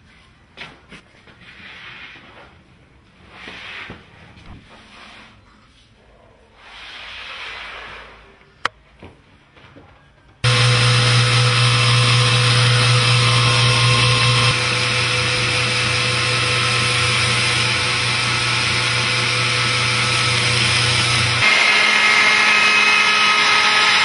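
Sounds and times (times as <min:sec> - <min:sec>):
machine whine: 0:10.4 - 0:24.0
woodworking machine humming: 0:10.4 - 0:24.0.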